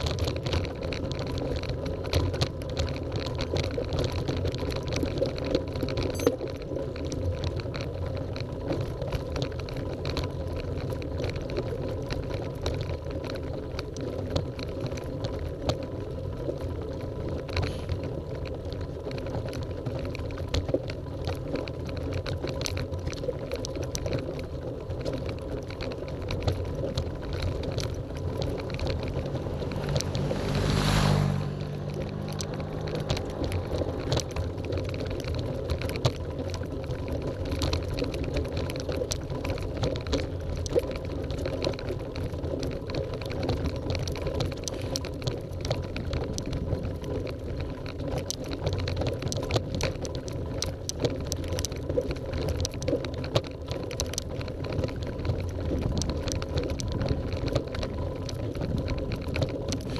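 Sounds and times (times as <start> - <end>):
bicycle rattling over cobblestones: 0.0 - 59.9
whoosh: 29.2 - 33.3.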